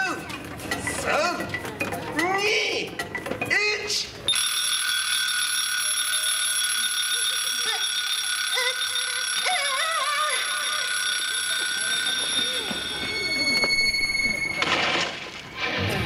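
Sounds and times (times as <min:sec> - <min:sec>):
shrill electronic alarm tone: 0:04.3 - 0:14.7
faint voices: 0:05.8 - 0:15.2.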